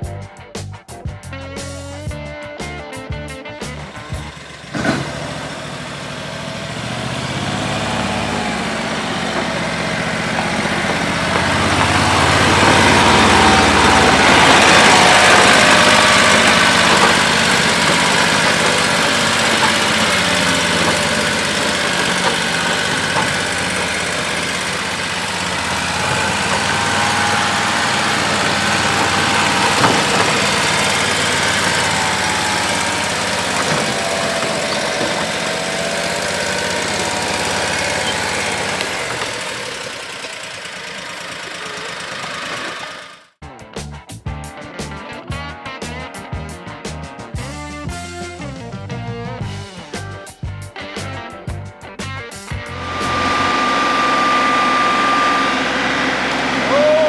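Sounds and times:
utility vehicle engine running: 0:02.6 - 0:43.4, 0:52.5 - 0:57.0.

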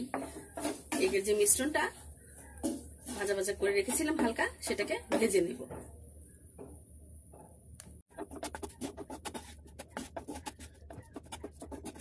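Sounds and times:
wooden spatula scraping frying pan: 0:00.0 - 0:02.0, 0:02.6 - 0:04.5, 0:08.2 - 0:12.0.

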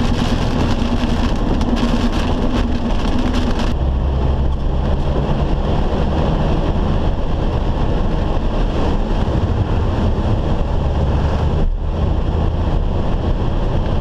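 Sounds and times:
heavy rain on car windshield: 0:00.0 - 0:03.8
road and engine rumble: 0:00.0 - 0:14.0.

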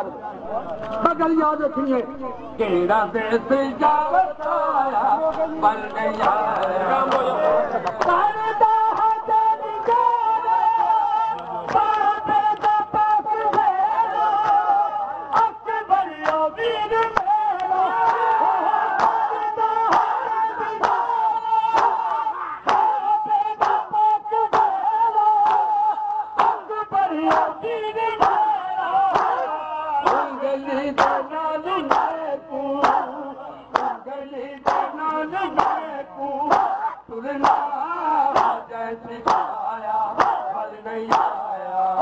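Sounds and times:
crowd singing: 0:00.0 - 0:42.0
man chanting a lament: 0:00.0 - 0:42.0
hands slapping chests: 0:05.3 - 0:08.2, 0:11.4 - 0:13.8, 0:14.4 - 0:14.7, 0:19.0 - 0:19.3, 0:19.9 - 0:21.1, 0:21.7 - 0:23.0, 0:23.6 - 0:26.6, 0:27.3 - 0:27.5, 0:28.2 - 0:28.5, 0:29.1 - 0:30.3, 0:31.0 - 0:32.2, 0:32.8 - 0:33.1, 0:33.7 - 0:34.0, 0:34.6 - 0:35.9, 0:36.5 - 0:37.7, 0:38.3 - 0:38.6, 0:39.2 - 0:41.4.

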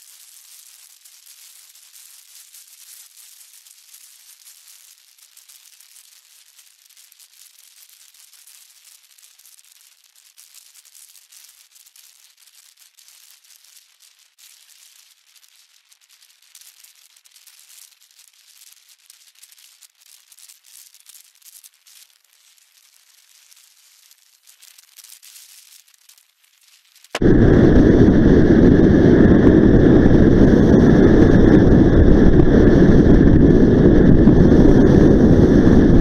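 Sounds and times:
wind buffeting microphone: 0:27.2 - 0:36.0.

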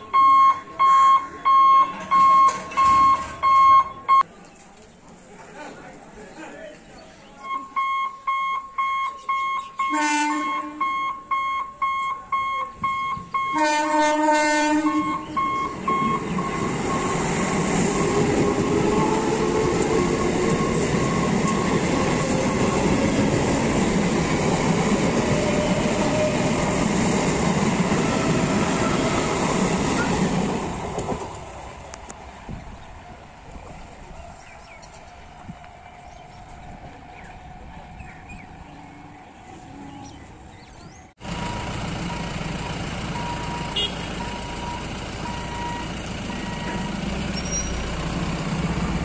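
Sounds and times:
level crossing warning buzzer beeping: 0:00.1 - 0:04.2, 0:07.5 - 0:14.0, 0:14.6 - 0:18.2, 0:41.3 - 0:47.8
train horn blasts: 0:09.8 - 0:11.0, 0:13.4 - 0:15.6, 0:43.8 - 0:44.0
train wheels rushing on rails: 0:14.1 - 0:38.7.

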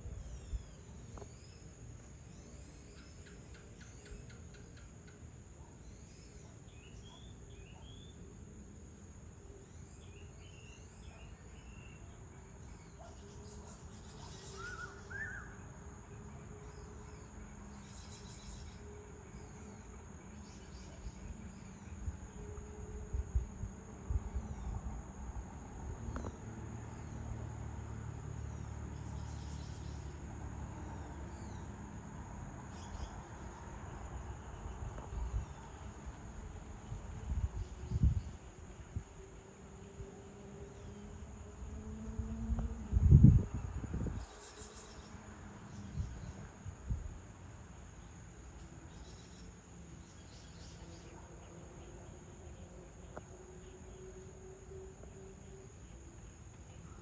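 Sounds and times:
insect drone: 0:00.0 - 0:57.0
bird chirps: 0:09.7 - 0:15.6.

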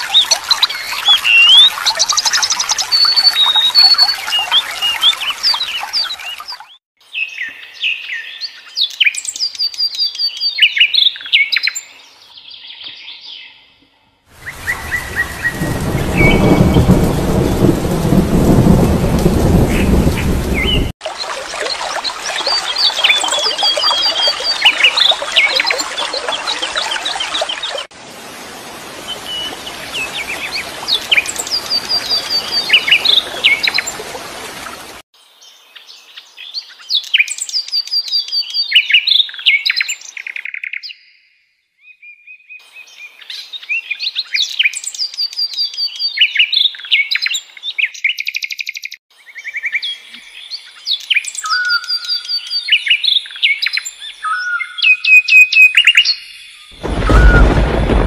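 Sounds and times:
rushing stream: 0:00.0 - 0:06.8, 0:14.4 - 0:35.0, 0:56.8 - 0:58.0
songbirds chirping and singing: 0:35.3 - 0:56.8.

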